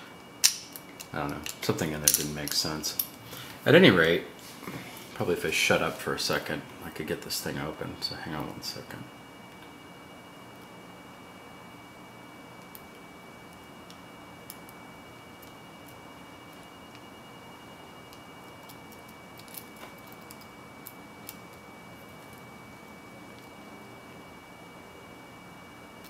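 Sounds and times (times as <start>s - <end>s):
faint high whine: 0.0s - 26.0s.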